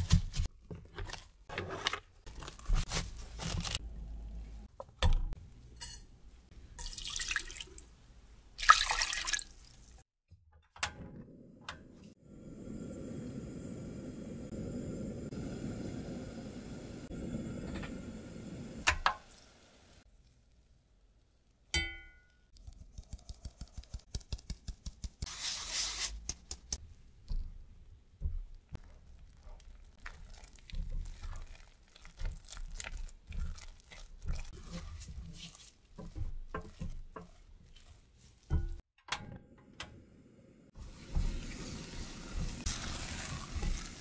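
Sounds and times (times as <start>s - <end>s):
milk simmering in pot: 28.3s - 38.9s
spatula knocking and scraping pot: 32.2s - 39.0s.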